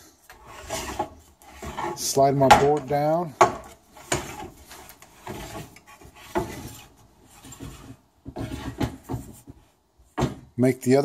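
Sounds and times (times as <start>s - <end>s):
wooden board scraping on metal: 0.3s - 9.6s
board knocks: 10.2s - 10.5s.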